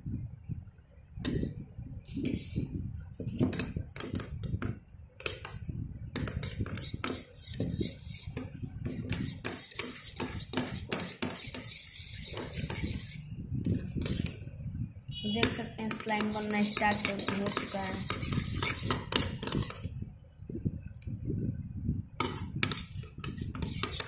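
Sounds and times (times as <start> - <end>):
metal spoon scraping steel bowl: 2.1 - 14.4, 15.2 - 19.9, 22.2 - 24.0.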